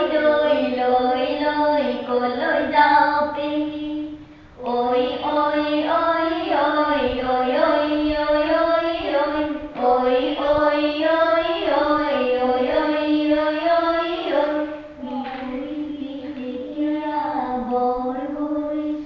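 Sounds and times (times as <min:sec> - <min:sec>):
child singing unaccompanied: 0:00.0 - 0:19.0.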